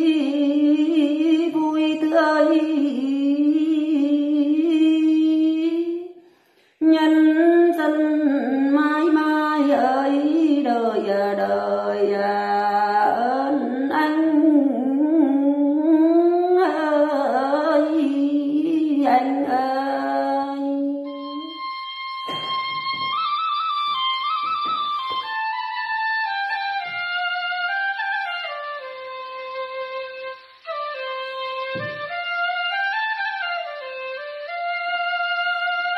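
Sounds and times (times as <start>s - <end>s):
woman singing unaccompanied: 0.0s - 6.2s, 6.8s - 21.6s
instrumental melody: 21.0s - 35.9s.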